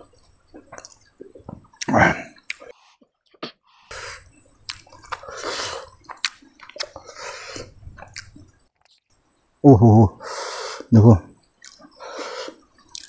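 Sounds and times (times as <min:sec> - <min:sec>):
wet chewing: 0:00.0 - 0:09.2, 0:11.5 - 0:13.0
slurping at snail shells: 0:00.5 - 0:09.1, 0:11.6 - 0:13.0.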